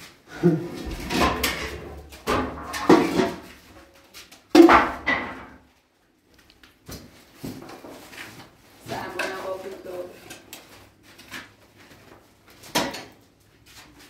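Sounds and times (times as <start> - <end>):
metal rods clattering: 0.9 - 3.7.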